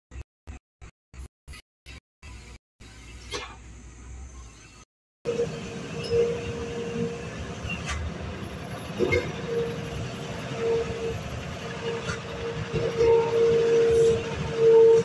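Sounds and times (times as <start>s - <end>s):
truck diesel engine labouring: 5.3s - 15.0s.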